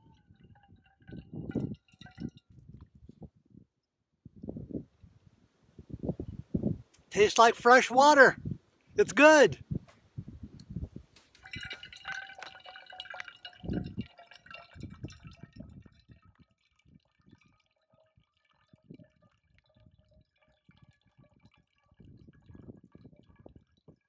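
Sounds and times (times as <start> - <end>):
water trickling into a steel cup: 0.0 - 3.3, 10.5 - 24.0.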